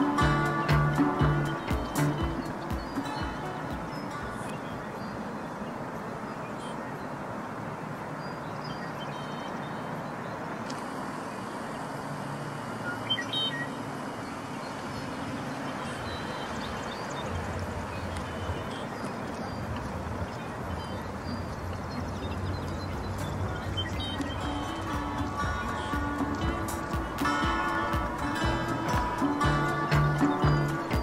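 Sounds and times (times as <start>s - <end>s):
bird chirps: 0.0s - 7.3s, 8.1s - 11.6s, 12.7s - 31.0s
soft background music: 0.0s - 8.8s, 21.6s - 31.0s.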